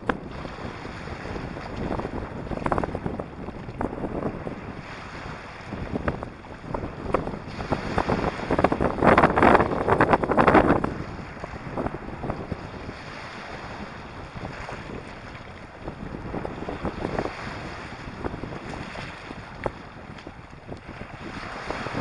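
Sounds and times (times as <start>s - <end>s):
waves washing over stony beach: 0.0s - 22.0s.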